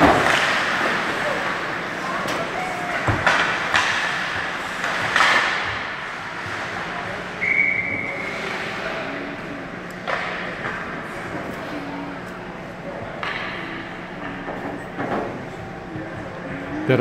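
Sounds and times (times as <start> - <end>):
stick hitting puck: 0.0 - 1.6, 3.0 - 6.7, 13.2 - 13.6
ice rink noise: 0.0 - 17.0
referee's whistle: 7.4 - 8.2.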